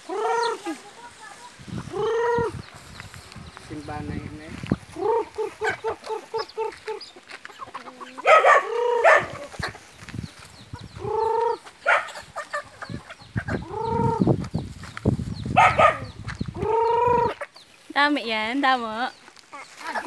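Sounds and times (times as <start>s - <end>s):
chicken squawks: 0.0s - 2.6s, 4.9s - 10.0s, 10.7s - 14.3s, 15.5s - 17.6s
chickens clucking: 0.0s - 20.0s.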